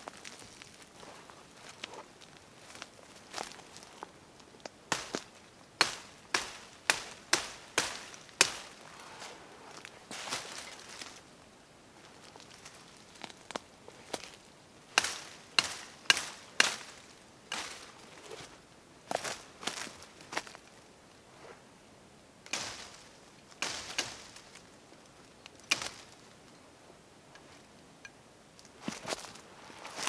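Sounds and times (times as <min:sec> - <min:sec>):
blade chopping branches: 0:04.9 - 0:08.8, 0:15.0 - 0:17.9, 0:22.5 - 0:23.0, 0:23.6 - 0:24.6, 0:25.7 - 0:26.2.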